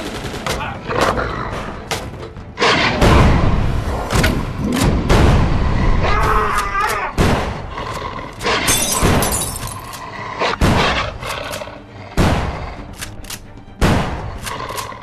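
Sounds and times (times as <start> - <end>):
film music score: 0.0 - 15.0
heavy gunshots with echo: 4.6 - 6.0, 7.1 - 7.8, 10.6 - 11.2, 12.1 - 12.9, 13.8 - 14.4.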